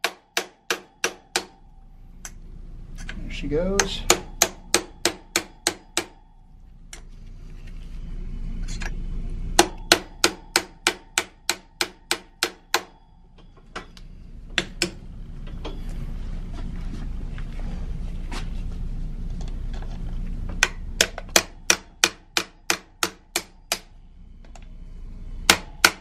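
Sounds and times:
hammer tapping metal punch: 0.0s - 1.7s, 3.8s - 6.4s, 9.6s - 15.0s, 25.5s - 26.0s.

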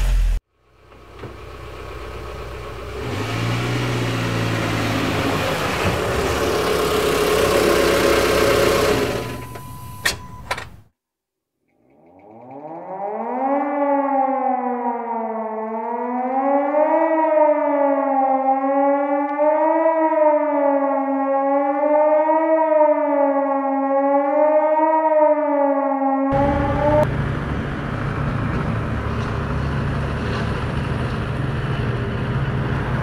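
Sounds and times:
siren wailing: 11.8s - 27.2s.

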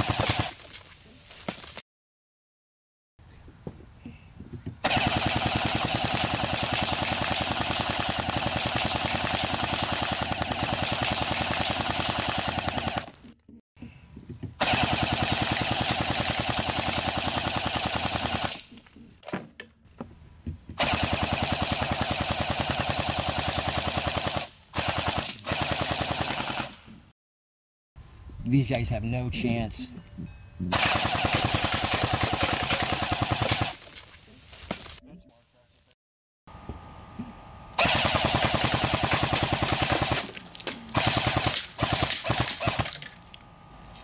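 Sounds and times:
electric bb rifle bursts: 4.8s - 13.2s, 14.6s - 18.6s, 30.8s - 33.8s, 37.8s - 40.3s, 41.0s - 43.1s.

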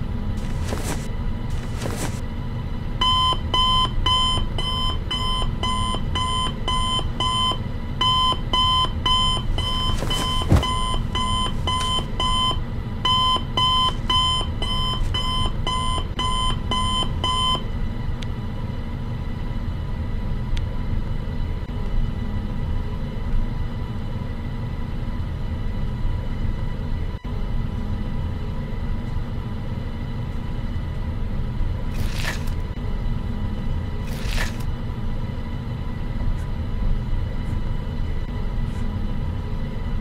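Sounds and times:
steady low rumble: 0.0s - 3.0s, 8.6s - 16.8s
electronic alarm beeping: 3.0s - 17.6s.

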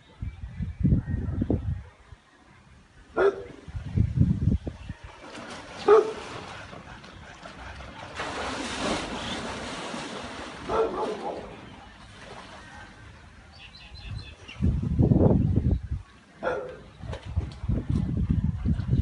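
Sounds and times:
tiger splashing in water: 5.0s - 13.4s.

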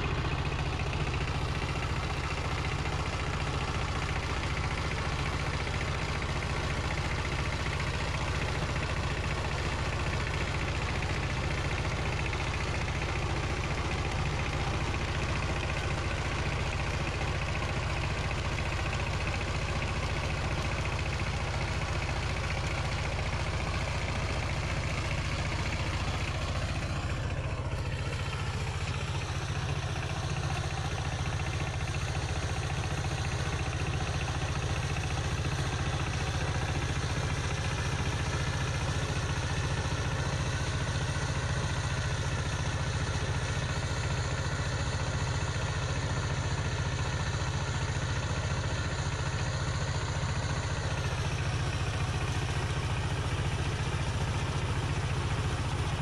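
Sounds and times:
diesel tiller engine running: 0.0s - 56.0s
tiller churning soil: 0.0s - 56.0s.

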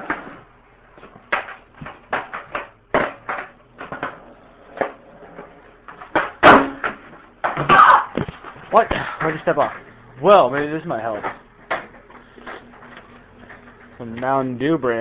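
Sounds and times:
skateboard clacking on ground: 1.2s - 7.6s.

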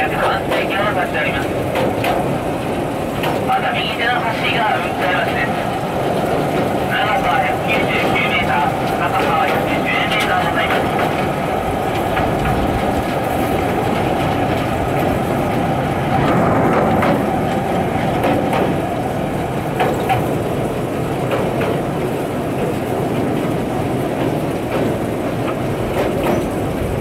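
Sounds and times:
faint track clicks: 0.0s - 20.4s
rail cart motor and wheels rumbling: 0.0s - 27.0s.

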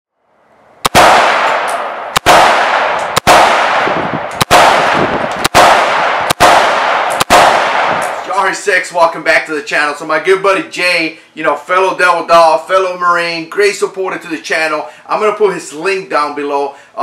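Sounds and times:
rifle shots echoing: 0.8s - 8.5s.

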